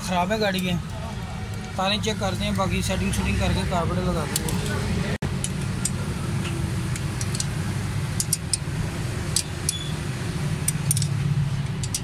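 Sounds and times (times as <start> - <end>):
spanner clicking on metal nuts: 5.4 - 7.6, 8.2 - 8.7, 9.3 - 10.0, 10.6 - 12.0.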